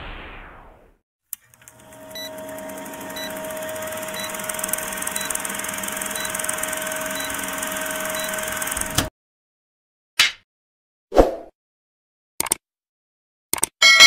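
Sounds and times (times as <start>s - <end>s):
film projector whirring: 1.4s - 9.1s.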